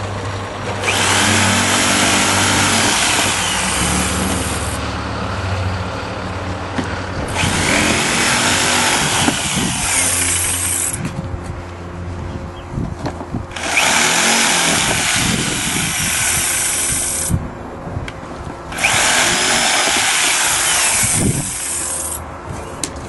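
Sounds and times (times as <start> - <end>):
jigsaw cutting plastic: 0.8 - 4.8, 7.3 - 11.0, 13.6 - 17.4, 18.8 - 22.2.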